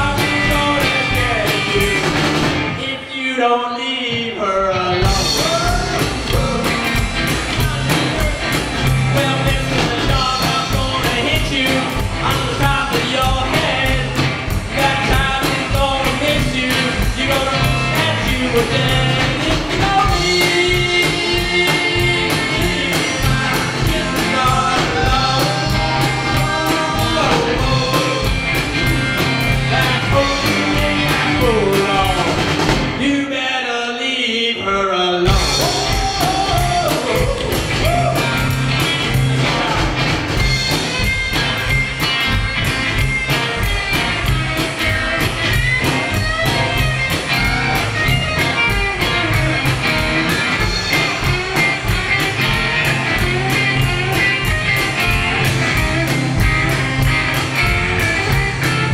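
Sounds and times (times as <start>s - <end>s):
upright double bass: 0.0s - 2.7s, 5.0s - 33.0s, 35.2s - 58.9s
drum kit: 0.0s - 3.0s, 4.1s - 33.3s, 35.2s - 58.9s
electric guitars: 0.0s - 3.1s, 4.0s - 33.1s, 34.7s - 58.9s
person singing: 0.0s - 40.1s.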